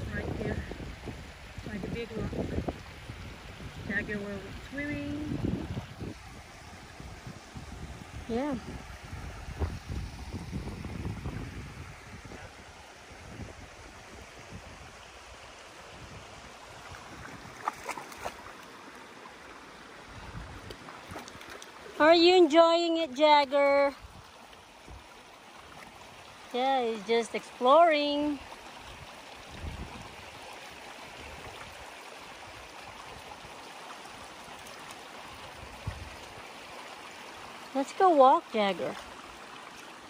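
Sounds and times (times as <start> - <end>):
creek water running: 0.0 - 40.0
dog splashing in water: 16.8 - 18.8, 20.6 - 22.0.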